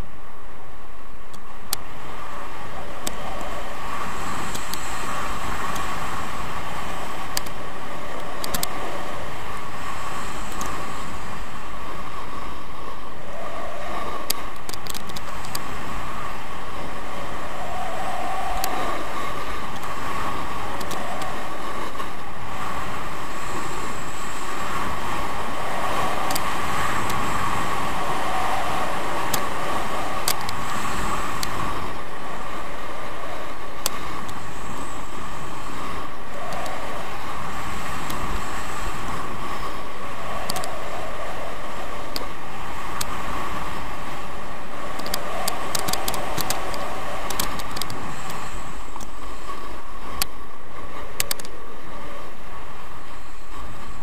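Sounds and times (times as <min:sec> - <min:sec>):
faint clicks: 0:01.3 - 0:01.9, 0:03.0 - 0:03.6, 0:04.3 - 0:06.4, 0:07.2 - 0:09.2, 0:10.3 - 0:11.2, 0:14.0 - 0:15.8, 0:17.5 - 0:22.2, 0:25.6 - 0:32.0, 0:33.4 - 0:44.2, 0:44.9 - 0:50.4, 0:51.0 - 0:51.7
skis scraping over snow: 0:01.5 - 0:54.0.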